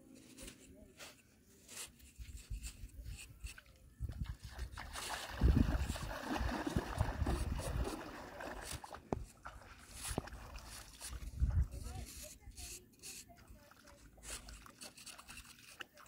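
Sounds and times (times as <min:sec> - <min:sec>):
metal blade scraping damp sand: 0:00.1 - 0:03.6, 0:11.8 - 0:16.0.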